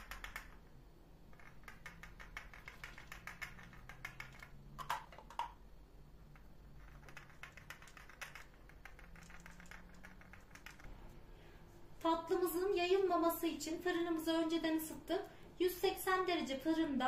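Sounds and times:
pastry brush clicking on dough: 0.0s - 0.6s, 1.3s - 5.5s, 6.3s - 10.9s.

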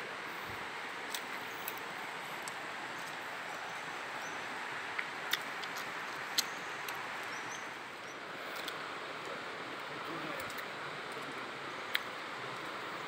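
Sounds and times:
river water rushing: 0.0s - 13.0s.

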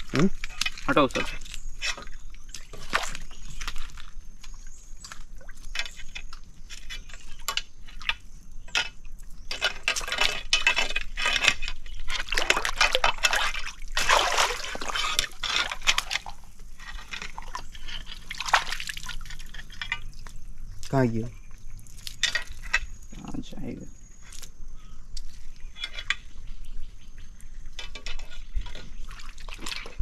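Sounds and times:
water splashing in muddy pool: 9.6s - 21.0s, 28.6s - 30.0s.

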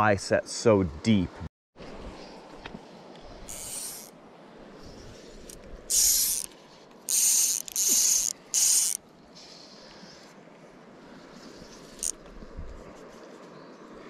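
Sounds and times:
fly reel drag buzzing: 3.4s - 4.2s, 5.3s - 9.0s, 11.7s - 12.2s.

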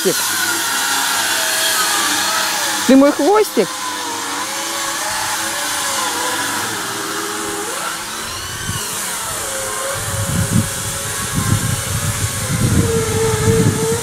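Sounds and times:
motor droning: 0.0s - 14.0s.

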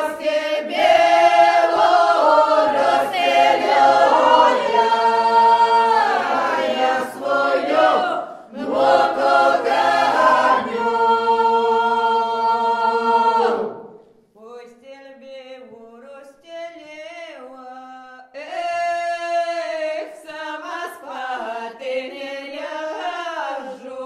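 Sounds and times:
group singing unaccompanied harmony: 0.0s - 14.0s, 20.4s - 24.0s.

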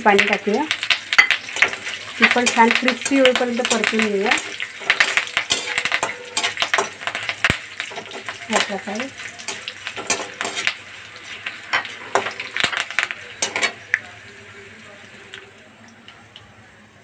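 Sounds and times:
food sizzling in hot oil: 0.0s - 17.0s
metal spatula scraping a pan: 1.2s - 7.3s, 9.4s - 10.8s.

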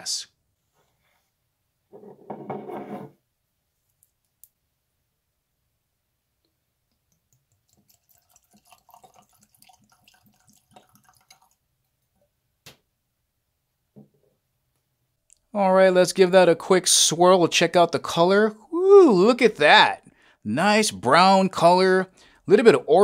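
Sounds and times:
liquid pouring into glass: 7.2s - 11.6s.

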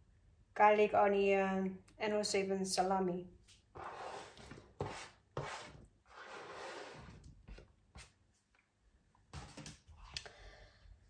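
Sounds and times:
food scraped off cutting board: 3.8s - 7.3s.

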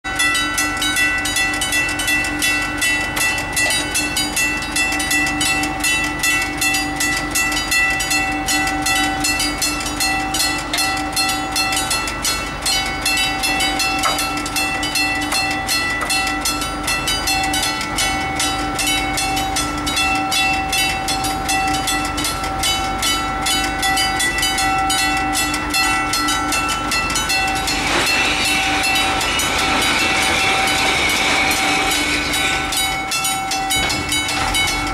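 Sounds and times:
level-crossing warning bell ringing: 0.0s - 34.9s
rushing noise: 27.5s - 34.9s.

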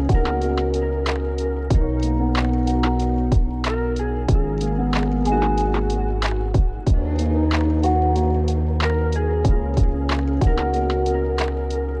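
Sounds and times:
hi-hat ticks: 0.0s - 11.8s
instrumental beat music: 0.0s - 12.0s
kick drum: 0.1s - 0.4s, 1.7s - 2.0s, 3.3s - 3.7s, 4.3s - 4.6s, 6.6s - 7.2s, 9.4s - 10.8s.

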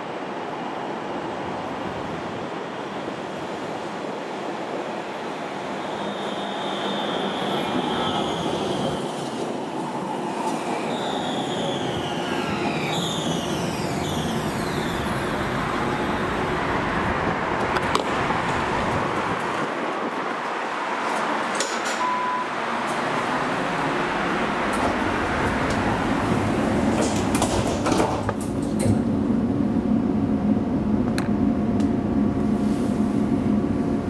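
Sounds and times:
tram rolling rumble: 0.0s - 34.0s
tram electric drive whining: 1.4s - 20.2s, 22.6s - 34.0s
short beep: 22.0s - 22.6s.

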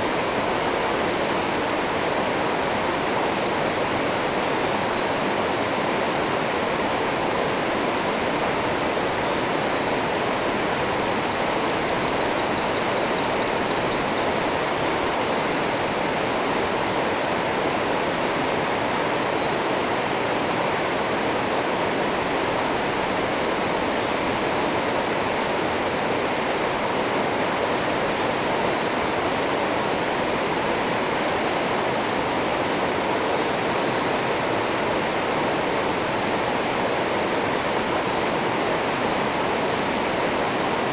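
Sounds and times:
river rapids rushing over rocks: 0.0s - 40.9s.

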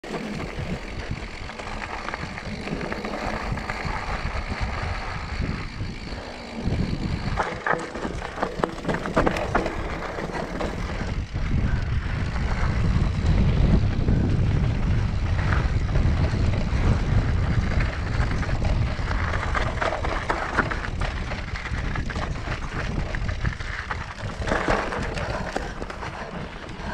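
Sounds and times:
tyre noise on dirt: 0.0s - 26.9s
wind rumbling on microphone: 0.0s - 26.9s
bike clattering over rocks: 5.4s - 11.8s, 15.4s - 26.9s.

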